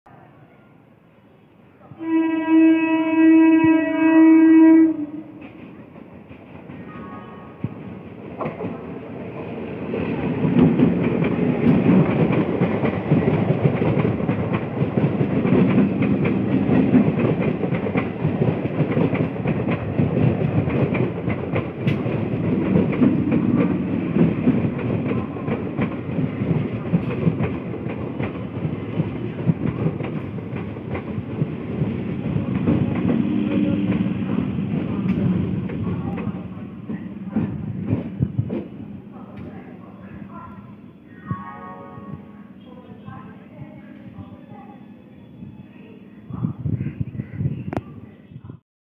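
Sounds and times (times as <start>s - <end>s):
train wheels rumbling on rails: 3.5s - 48.6s
clickety-clack over rail joints: 5.4s - 7.0s, 7.6s - 40.3s.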